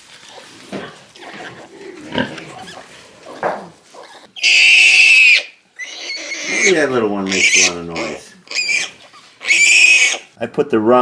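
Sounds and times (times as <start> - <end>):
piglets grunting and squeaking: 0.2 - 10.4
piglet high-pitched squeal: 4.0 - 10.3.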